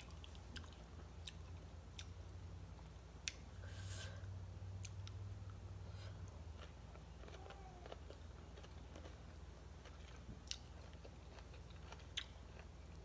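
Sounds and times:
faint chewing: 4.8 - 13.0.

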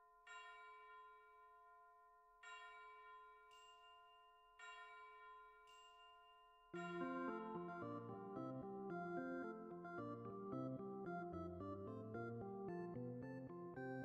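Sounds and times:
faint bell chime: 0.0 - 11.8
background music: 6.8 - 14.0.

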